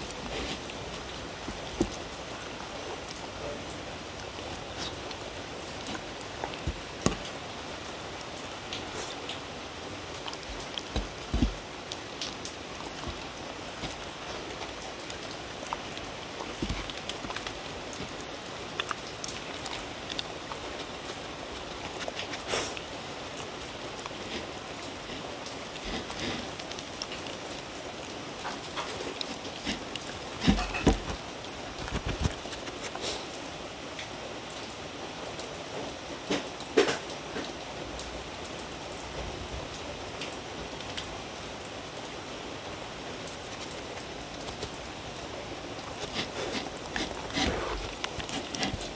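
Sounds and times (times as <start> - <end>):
dogs licking and chewing: 0.0 - 33.3, 43.2 - 48.9
steady hiss: 0.0 - 48.9.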